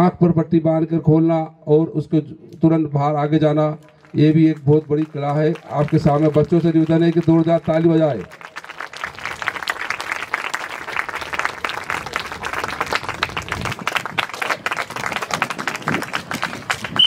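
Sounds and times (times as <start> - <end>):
children clapping: 3.8 - 17.0.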